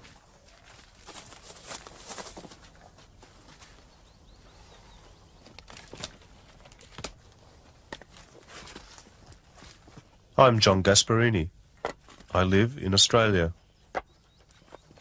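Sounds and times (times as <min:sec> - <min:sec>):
rustling: 0:00.0 - 0:10.2
soft footsteps: 0:00.0 - 0:10.2.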